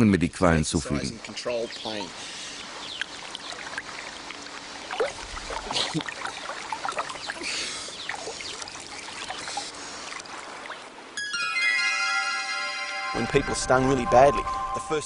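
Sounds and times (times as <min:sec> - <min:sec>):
water sloshing and splashing: 0:01.8 - 0:11.2
small water plops: 0:02.5 - 0:11.0.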